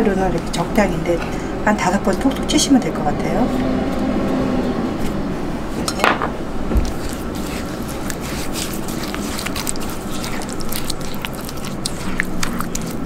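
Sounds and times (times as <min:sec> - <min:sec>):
spatula scraping paste in glass bowl: 0:06.8 - 0:13.0.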